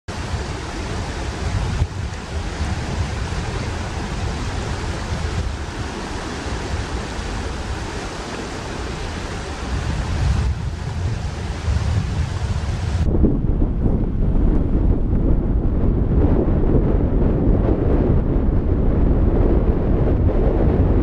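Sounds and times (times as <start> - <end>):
river water rushing: 0.1 - 13.1
wind buffeting microphone: 0.1 - 21.0.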